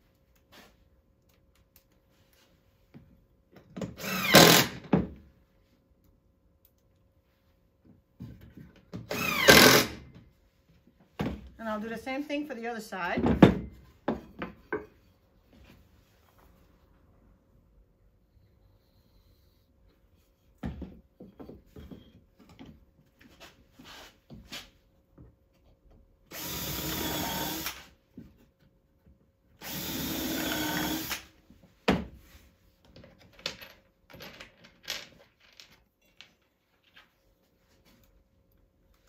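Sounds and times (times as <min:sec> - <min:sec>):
cordless drill driving screws: 0:04.0 - 0:04.8, 0:09.1 - 0:10.0, 0:26.3 - 0:27.8, 0:29.6 - 0:31.3.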